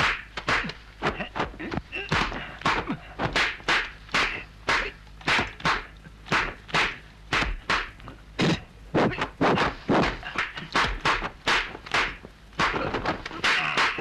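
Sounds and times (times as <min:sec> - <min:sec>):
low steady hum: 0:00.0 - 0:14.0
whooshing strikes and slaps: 0:02.7 - 0:08.0, 0:09.0 - 0:14.0.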